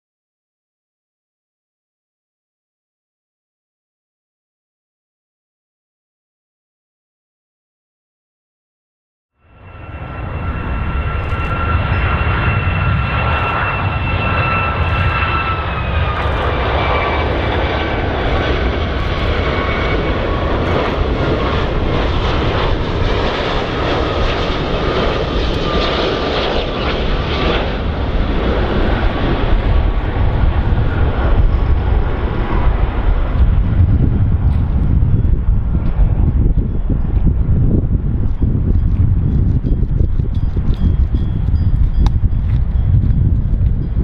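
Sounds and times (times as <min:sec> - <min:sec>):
airplane engines rumbling and whining: 0:09.4 - 0:44.0.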